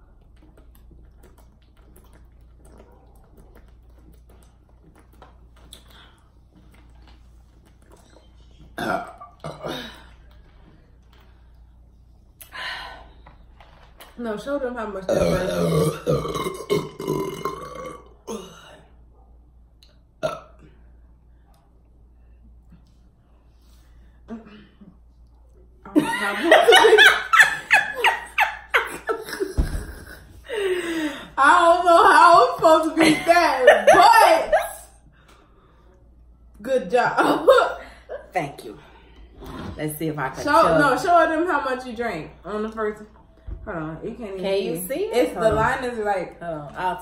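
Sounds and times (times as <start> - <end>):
gulping and swallowing: 0.0 - 9.7, 15.1 - 18.5
woman burping: 8.8 - 10.2, 15.1 - 18.8, 20.2 - 20.7, 29.1 - 30.6.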